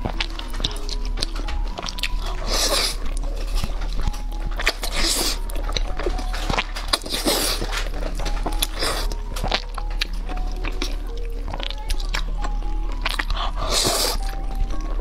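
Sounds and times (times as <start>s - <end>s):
noodles slurped: 0.0s - 3.8s, 4.6s - 11.0s, 13.0s - 14.6s
faint background music: 0.0s - 15.0s
wet chewing clicks: 0.0s - 15.0s.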